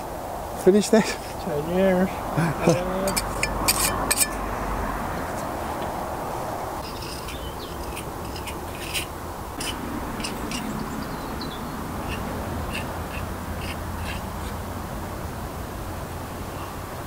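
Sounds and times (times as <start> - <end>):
steady low background noise: 0.0 - 17.0
trowel scraping and tapping: 2.7 - 4.4, 6.8 - 10.7, 12.0 - 14.6.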